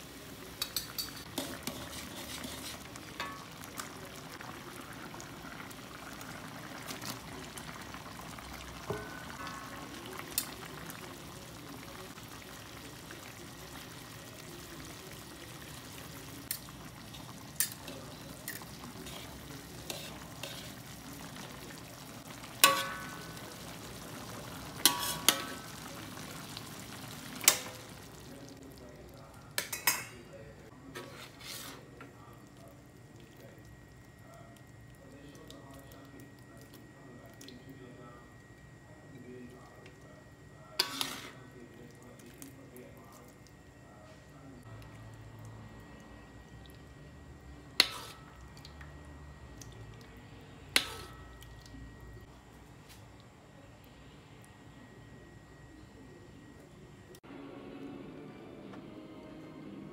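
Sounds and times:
sauce sizzling in a wok: 0:00.0 - 0:28.3, 0:40.8 - 0:41.4, 0:47.8 - 0:48.4, 0:50.8 - 0:51.2.

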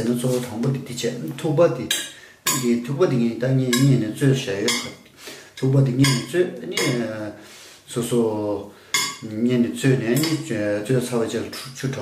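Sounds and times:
person talking: 0:00.0 - 0:05.0, 0:05.6 - 0:12.0
metal tongs clinking on glass dish: 0:05.6 - 0:07.0, 0:09.0 - 0:09.2.

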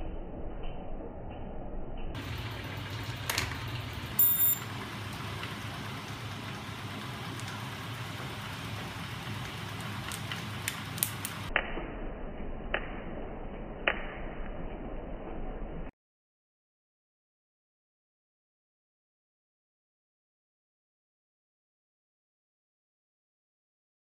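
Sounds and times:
motor rig humming and hissing: 0:02.2 - 0:11.5.

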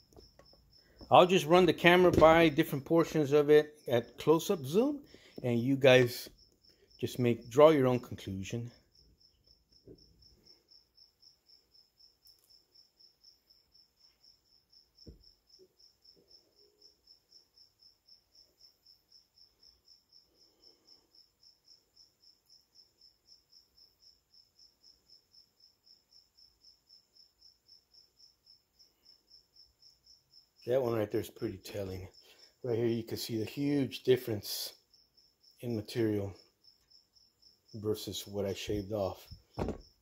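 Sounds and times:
cricket chirping: 0:00.0 - 0:40.0
soft thump: 0:02.1 - 0:02.5, 0:15.0 - 0:15.2, 0:39.3 - 0:39.9.

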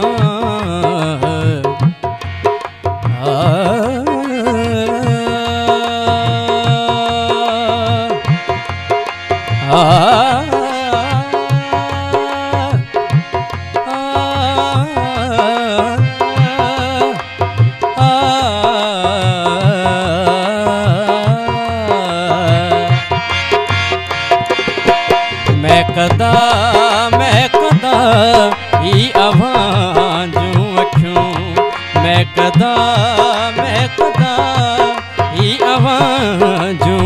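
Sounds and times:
man singing devotional song: 0:00.0 - 0:37.0
hand drum beat: 0:22.2 - 0:37.0.

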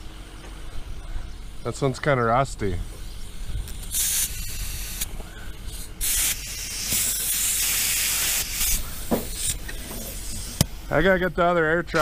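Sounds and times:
compressed air hissing: 0:03.2 - 0:10.9.

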